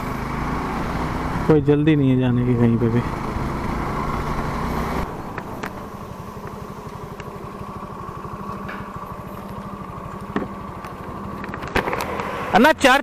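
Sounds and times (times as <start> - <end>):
motorcycle engine running: 0.0 - 13.0
road and wind rush: 0.0 - 13.0.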